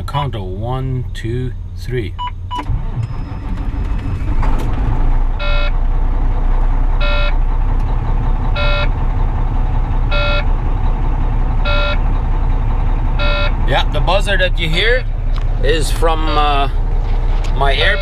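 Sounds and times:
diesel engine cranking and idling: 0:00.0 - 0:18.0
warning buzzer beeps: 0:07.0 - 0:07.3, 0:08.6 - 0:08.9, 0:10.1 - 0:10.4, 0:11.7 - 0:12.0, 0:13.2 - 0:13.6, 0:17.8 - 0:18.0.

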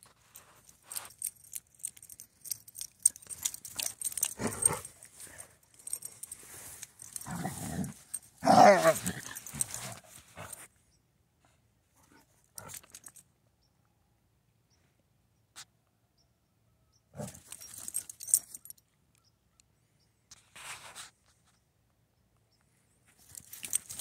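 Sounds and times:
collar tags jingling: 0:00.0 - 0:10.7, 0:12.0 - 0:13.3, 0:17.1 - 0:19.3, 0:23.2 - 0:24.0
dogs growling: 0:03.7 - 0:05.3, 0:07.1 - 0:10.6.

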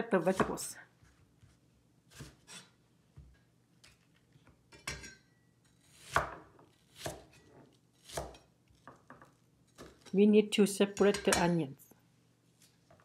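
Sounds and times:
cleaver chopping onion on board: 0:08.0 - 0:08.4.

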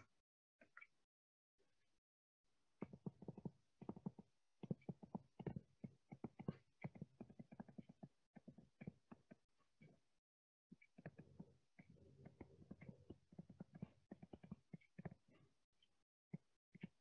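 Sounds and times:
stylus tapping on a tablet: 0:02.8 - 0:10.0.

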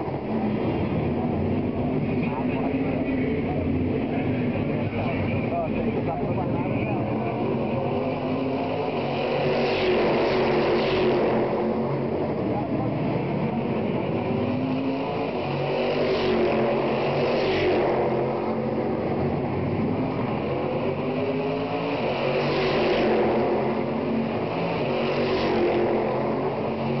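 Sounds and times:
racing car engines droning: 0:00.0 - 0:27.0.

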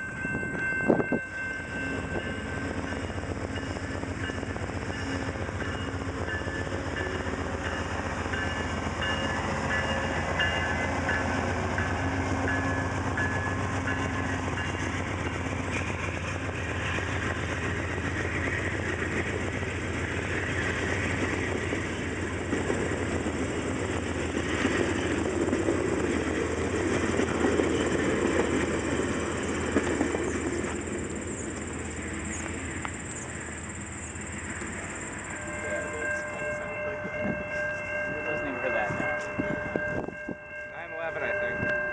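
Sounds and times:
locomotive engine: 0:00.0 - 0:40.6
train wheels rumbling on rails: 0:00.0 - 0:41.9.

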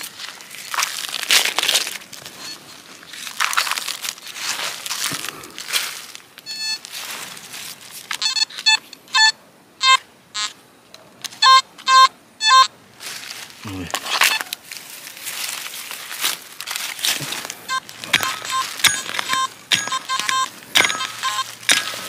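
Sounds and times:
metal detector beeping: 0:02.4 - 0:02.8, 0:06.4 - 0:06.9, 0:08.1 - 0:10.6, 0:11.2 - 0:12.7, 0:14.0 - 0:14.6, 0:17.3 - 0:22.0
soil scraping by hand: 0:13.0 - 0:22.0.

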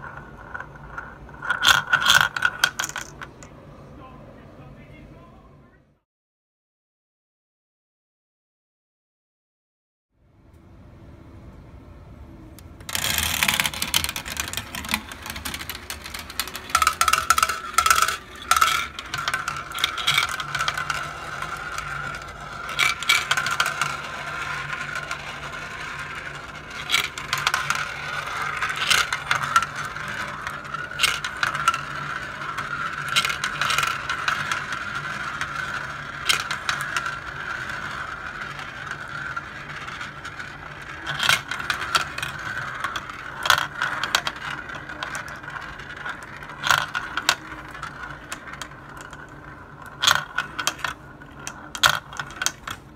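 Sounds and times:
marbles clicking together: 0:00.0 - 0:03.3, 0:12.8 - 0:52.9
marbles rolling whir: 0:00.0 - 0:03.5, 0:12.8 - 0:52.9.

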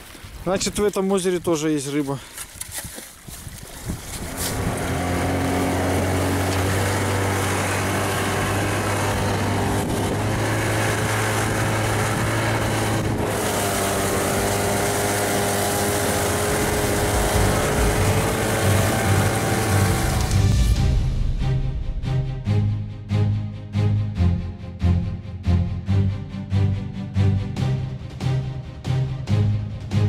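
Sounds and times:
wind rush: 0:03.3 - 0:20.3
snowmobile engine running: 0:04.1 - 0:20.8.

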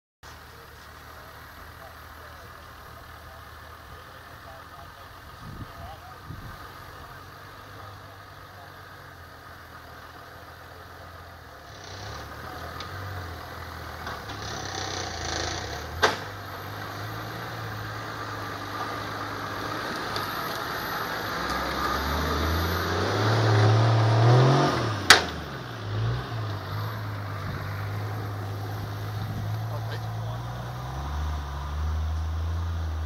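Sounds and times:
off-road vehicle engine running: 0:00.2 - 0:33.0
sharp knocks: 0:16.0 - 0:16.3.

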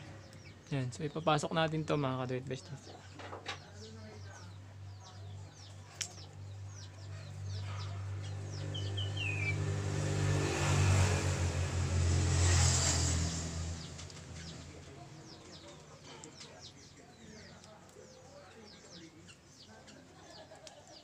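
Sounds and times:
small birds chirping: 0:00.0 - 0:21.0
vehicle engine hum: 0:03.8 - 0:18.0.

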